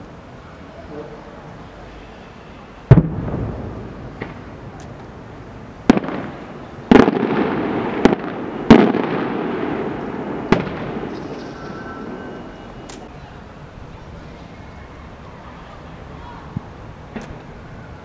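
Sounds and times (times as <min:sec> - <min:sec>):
fireworks bangs with echo: 0:02.9 - 0:12.5.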